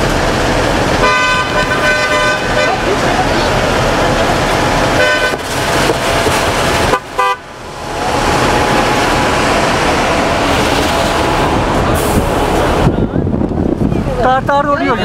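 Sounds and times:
traffic din: 0.0 - 15.0
vehicle horn tooting: 1.0 - 3.0, 5.0 - 5.5, 6.8 - 7.5.

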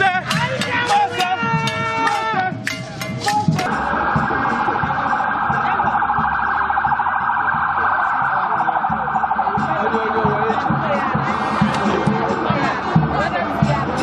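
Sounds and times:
low pulsing beat: 0.0 - 14.0
siren-like warbling tone: 3.5 - 12.5.

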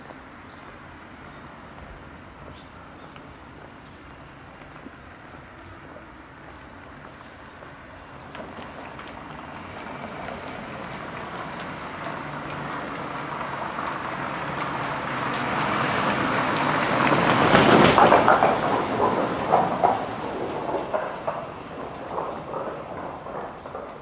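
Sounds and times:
vehicle passing by: 8.9 - 23.8.

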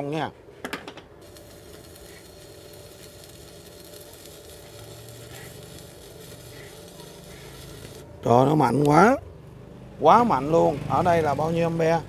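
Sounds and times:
arc welding crackling sizzle: 1.2 - 9.2.

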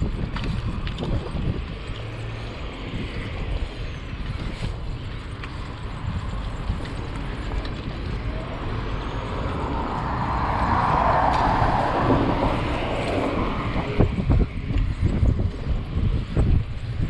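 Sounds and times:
wind rumble on microphone: 0.0 - 17.0
vehicle passing by: 7.0 - 14.6.

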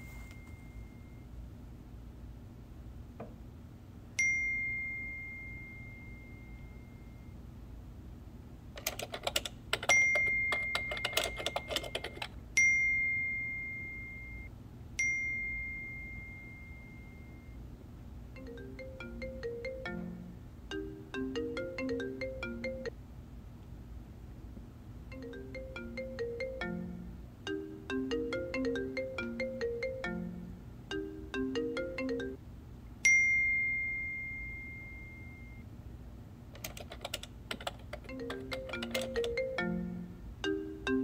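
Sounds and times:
laptop keyboard typing: 8.8 - 12.4, 36.6 - 39.6
phone ringtone melody: 9.9 - 12.7, 18.4 - 22.9, 25.1 - 32.4, 38.0 - 41.0.

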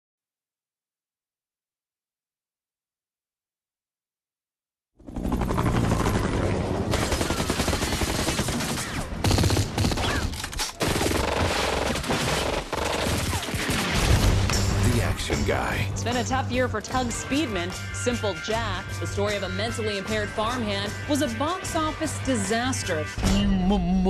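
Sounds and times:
automatic gunfire: 6.9 - 14.3.

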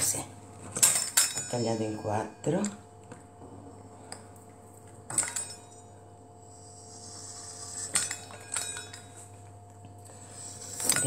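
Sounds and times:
faint steady hum: 0.0 - 11.0
metal utensils clattering on wood: 0.7 - 2.8, 5.1 - 5.8.

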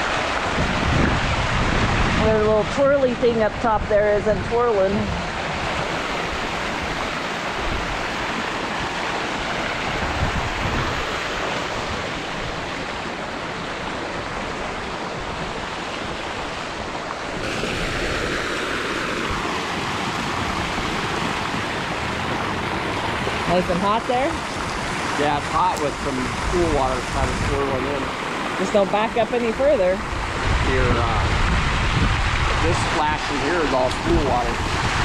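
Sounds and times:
water splashing into pool: 0.0 - 2.4, 4.9 - 29.2.

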